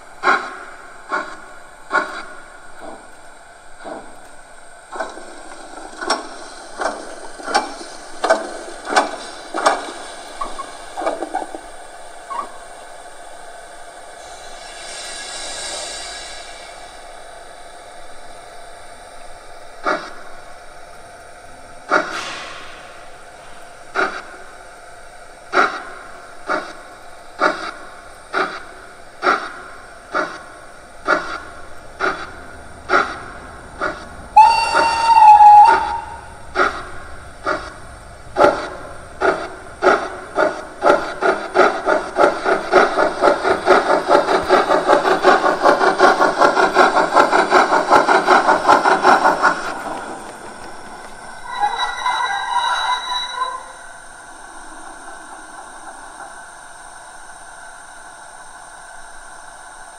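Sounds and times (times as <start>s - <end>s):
steam locomotive exhaust chuffs: 0.0s - 59.9s
locomotive whistle blast: 34.3s - 37.1s, 51.4s - 54.0s.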